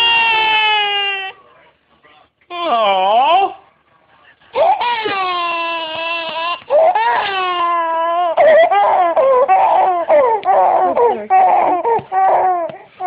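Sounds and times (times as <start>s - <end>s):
infant crying: 0.0s - 1.4s, 4.6s - 13.0s.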